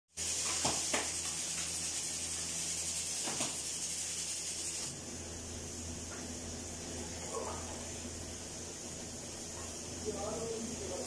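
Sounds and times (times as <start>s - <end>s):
high hiss: 0.1s - 5.0s.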